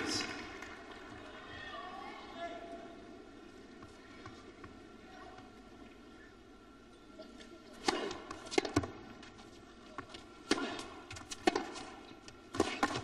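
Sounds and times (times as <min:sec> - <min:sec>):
tennis ball bouncing on court: 0:07.8 - 0:09.0, 0:10.4 - 0:13.0
rackets striking tennis ball: 0:07.8 - 0:09.1, 0:10.4 - 0:13.0.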